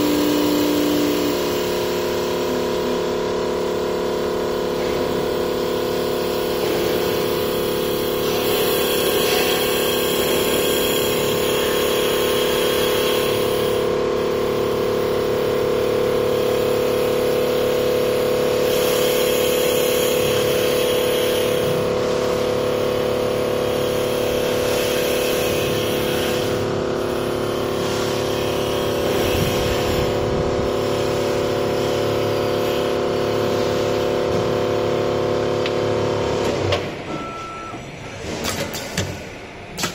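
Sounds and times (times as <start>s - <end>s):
lathe motor hum: 0.0s - 37.1s
cutting tool hissing in wood: 8.0s - 13.9s, 18.6s - 21.9s.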